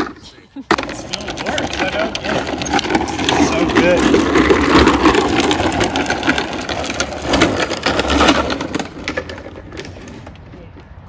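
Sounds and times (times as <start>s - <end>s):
plastic wheels rattling on asphalt: 0.0s - 11.0s.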